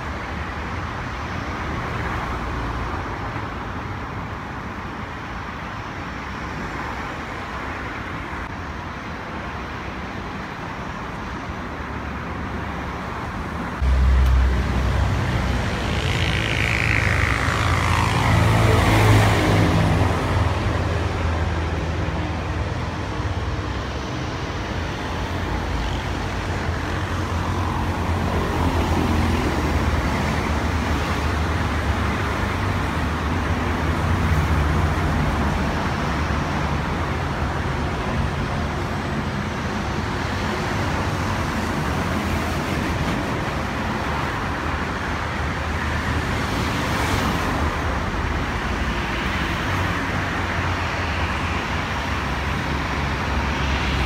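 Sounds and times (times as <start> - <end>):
street traffic noise: 0.0 - 54.0
jet engines rumbling: 13.6 - 30.4.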